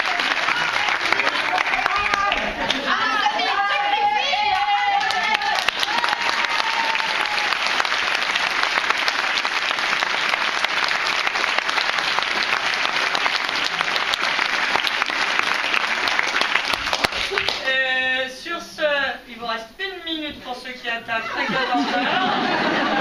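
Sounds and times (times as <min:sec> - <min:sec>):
audience applauding: 0:00.0 - 0:17.7
person speaking: 0:17.4 - 0:22.0.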